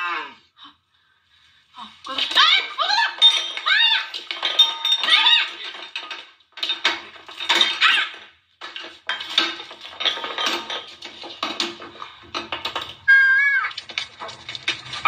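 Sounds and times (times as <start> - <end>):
food bowls knocking and rattling: 2.0 - 13.1, 13.7 - 15.0
cats fighting on hard floor: 5.7 - 15.0
cat cries: 13.1 - 13.8.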